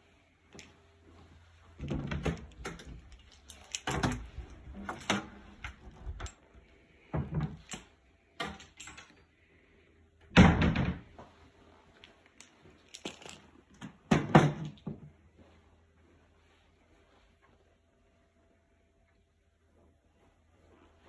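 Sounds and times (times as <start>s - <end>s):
knocks and bumps in a room: 1.8s - 3.2s, 7.0s - 7.7s, 10.3s - 11.4s.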